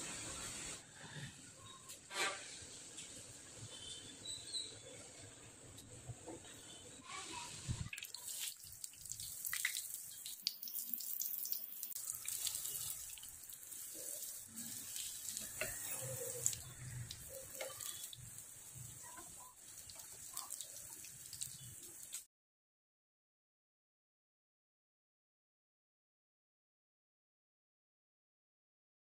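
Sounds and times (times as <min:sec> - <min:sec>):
food sizzling in hot oil: 0:07.0 - 0:22.3.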